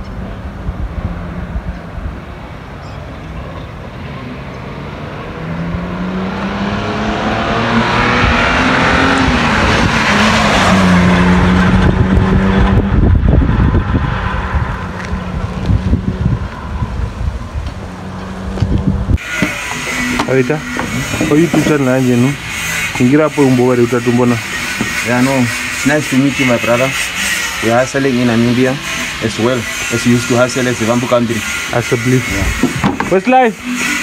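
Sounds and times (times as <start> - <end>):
road noise: 0.0 - 34.0
car driving past: 3.2 - 30.0.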